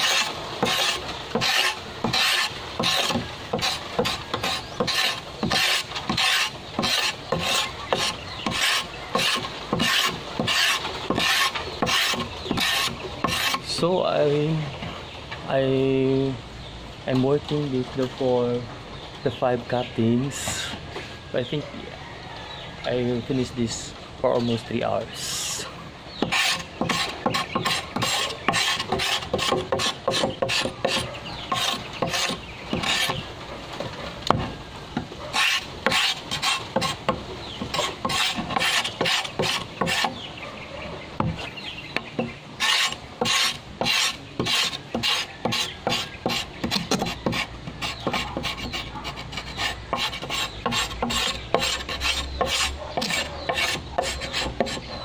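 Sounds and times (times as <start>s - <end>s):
blade scraping bamboo: 0.0s - 13.9s, 25.2s - 34.5s, 35.2s - 40.3s, 41.2s - 55.0s.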